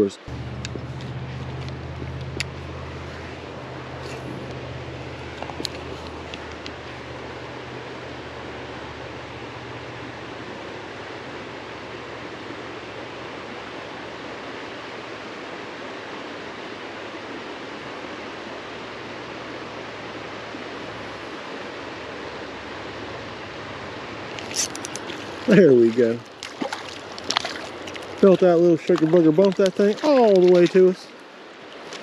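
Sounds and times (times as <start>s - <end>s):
faint low hum: 0.0s - 15.2s
creek water rushing: 0.0s - 32.0s.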